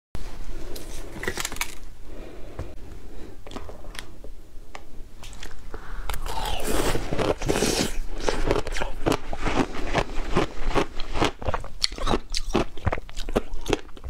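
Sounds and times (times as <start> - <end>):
ice bar crunching: 6.2 - 11.6.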